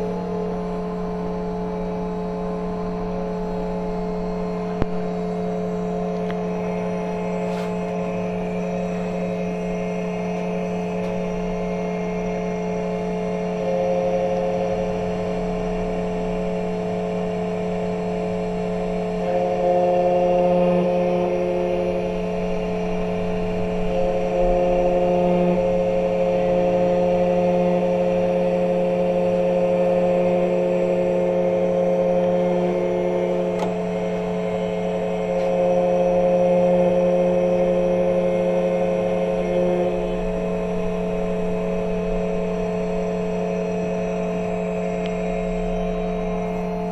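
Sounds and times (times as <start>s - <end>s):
key cutting machine whining: 0.0s - 46.9s.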